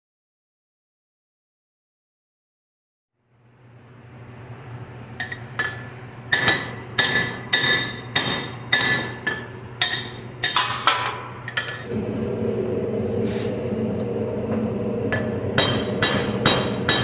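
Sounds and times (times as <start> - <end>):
hammer striking iron on anvil: 5.2 - 11.8, 15.1 - 17.0
low hum: 11.7 - 17.0
steady drone: 11.8 - 17.0.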